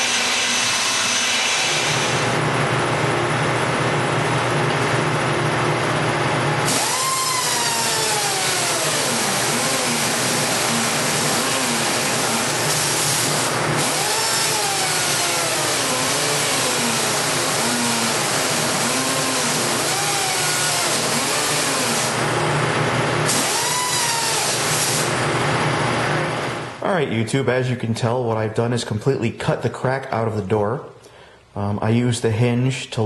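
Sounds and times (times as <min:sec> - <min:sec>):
rotary tool grinding metal: 0:00.0 - 0:02.2.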